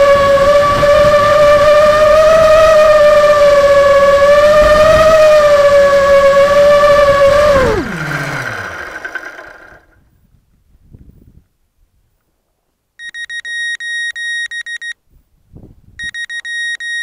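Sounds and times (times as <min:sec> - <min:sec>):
quadcopter motors whining: 0:00.0 - 0:10.0.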